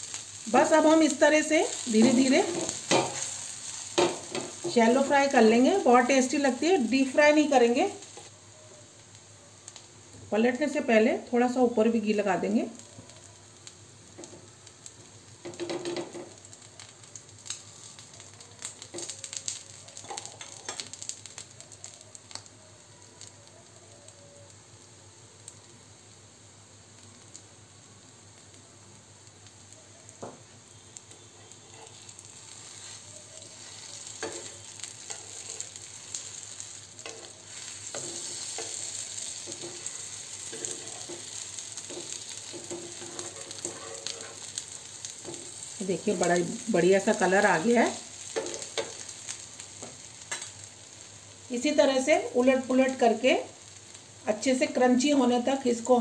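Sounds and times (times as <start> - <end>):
food sizzling in a pan: 0.0 - 56.0
spoon and spatula scraping pan: 37.0 - 44.6.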